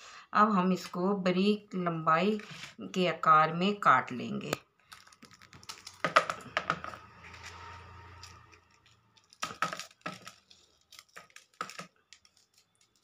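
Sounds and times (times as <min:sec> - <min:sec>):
knife snapping through chillies: 0:08.2 - 0:13.0.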